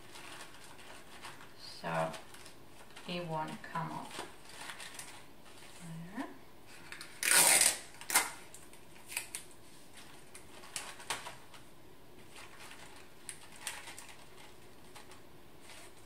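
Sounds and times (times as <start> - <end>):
tape snapping off dispenser: 7.2 - 8.5
paper rustling and tapping: 8.6 - 16.0.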